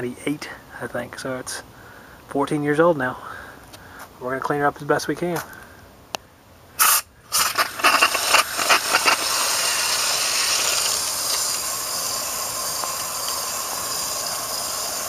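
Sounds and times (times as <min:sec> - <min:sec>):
sprayer spurting and hissing: 0:06.8 - 0:15.0.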